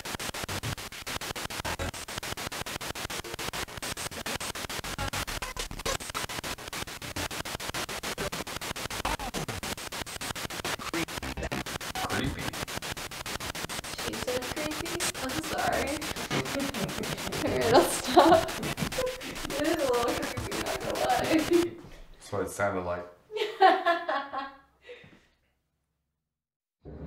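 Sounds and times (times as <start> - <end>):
pulsing radio static: 0.0 - 21.8
broadcast sound fragments: 0.2 - 21.8.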